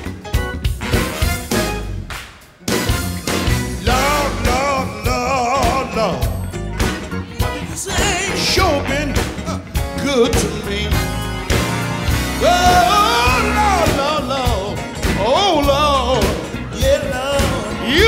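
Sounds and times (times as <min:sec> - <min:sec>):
electric bass: 0:00.0 - 0:02.1, 0:02.7 - 0:18.0
drums: 0:00.0 - 0:18.0
man singing into microphone: 0:03.8 - 0:06.5, 0:07.6 - 0:11.1, 0:12.4 - 0:18.0.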